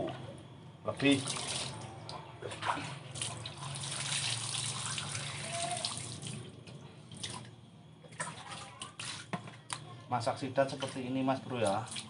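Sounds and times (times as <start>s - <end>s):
water splashing on concrete: 2.6s - 6.5s.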